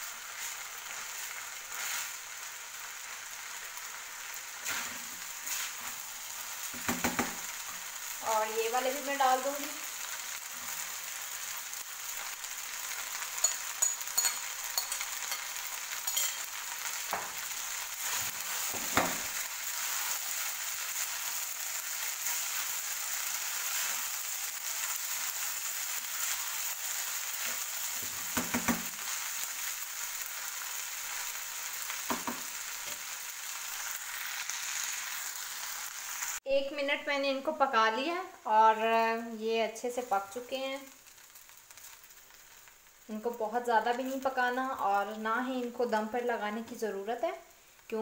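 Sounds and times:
rice sizzling in a frying pan: 0.0 - 48.0
spatula knocking on pan: 6.8 - 7.4, 18.8 - 19.2, 28.3 - 28.9, 32.1 - 32.5.

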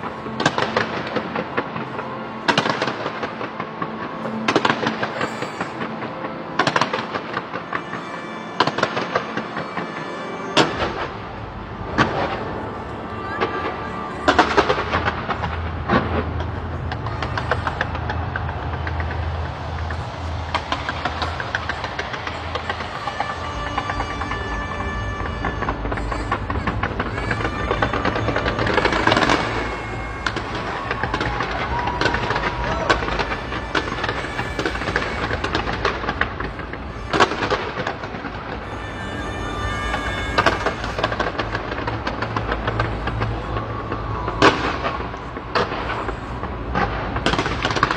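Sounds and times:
fireworks crackle: 0.0 - 47.9
fireworks bangs: 0.3 - 47.9.

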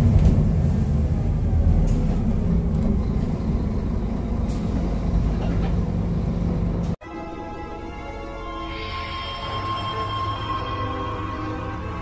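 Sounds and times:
bus diesel engine rumbling: 0.0 - 7.0.

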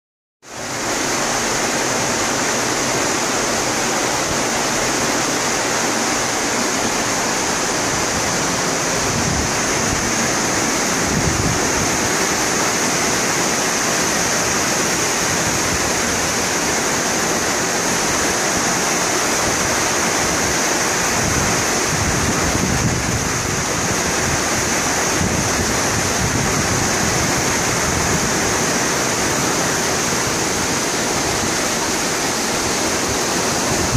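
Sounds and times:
ship wake churning water: 0.4 - 33.9
wind buffeting microphone: 7.5 - 12.8, 20.3 - 31.6, 32.5 - 33.9.

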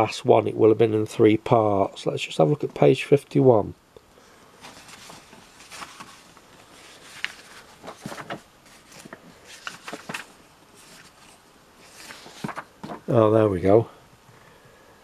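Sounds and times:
magazine pages rustling: 4.6 - 13.2.

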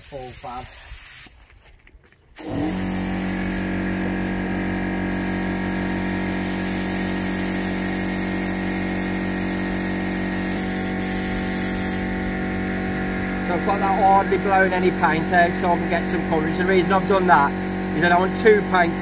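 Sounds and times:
spray gun hissing: 0.0 - 1.3, 2.4 - 3.8, 5.1 - 12.2
air compressor motor humming: 2.4 - 19.0.

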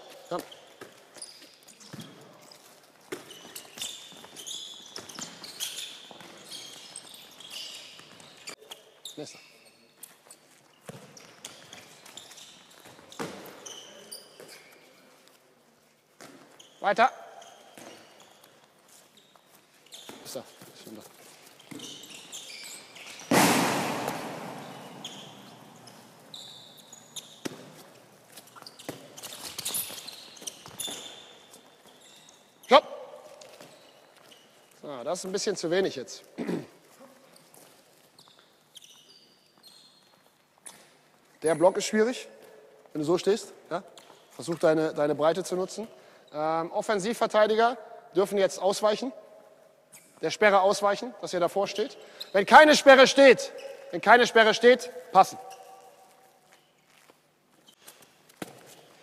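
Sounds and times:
balls bouncing: 0.0 - 8.8, 10.0 - 14.9, 16.2 - 32.0, 57.8 - 59.0
shoes squeaking on court: 0.0 - 47.8, 48.4 - 59.0
loud echoing bang: 23.3 - 25.7
ball bouncing thuds: 23.3 - 26.2, 27.4 - 27.9.

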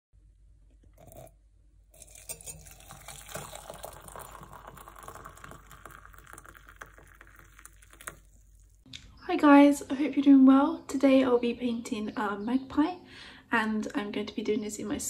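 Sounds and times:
water pouring into a mug: 1.0 - 1.3, 2.0 - 8.8.

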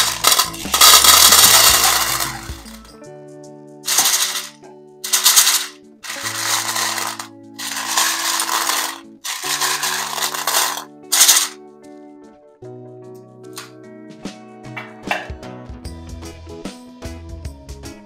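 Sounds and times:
hard candies rattling in a tin: 0.0 - 2.9, 3.9 - 11.6
background music: 0.0 - 18.0.

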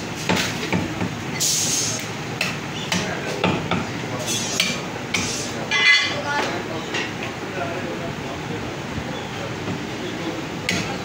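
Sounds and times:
cleaver chopping meat and bone: 0.2 - 1.2, 2.4 - 5.4, 10.7 - 11.0.

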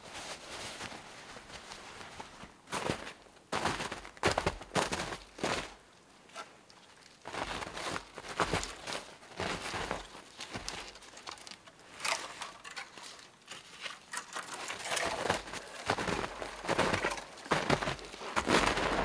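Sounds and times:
boots crunching in snow: 0.0 - 5.8, 7.3 - 11.2, 14.8 - 19.0
dry wood crackling and cracking: 5.2 - 19.0.

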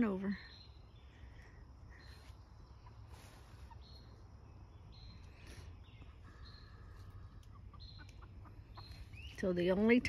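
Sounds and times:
chicken calls: 1.9 - 4.5, 5.1 - 9.4.

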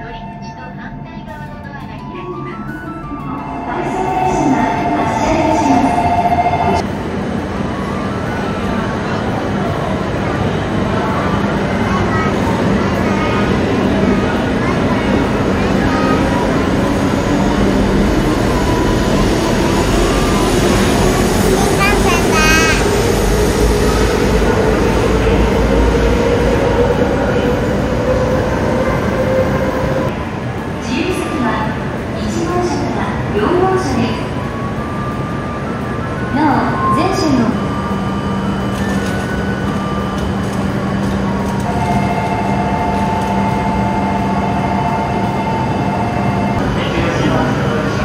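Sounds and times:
train rumble: 0.0 - 48.0
train whine: 0.0 - 48.0
train hum and air conditioning: 37.3 - 46.6.

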